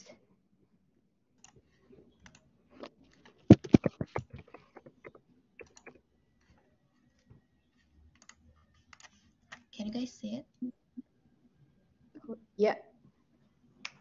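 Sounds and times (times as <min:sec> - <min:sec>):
keyboard and mouse clicks: 0:03.5 - 0:06.0, 0:08.2 - 0:09.6.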